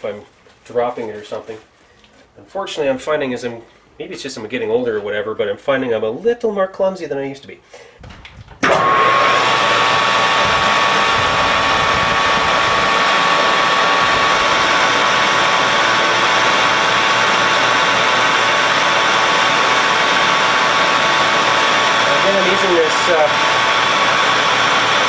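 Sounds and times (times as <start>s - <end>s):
metal lathe running: 8.6s - 25.0s.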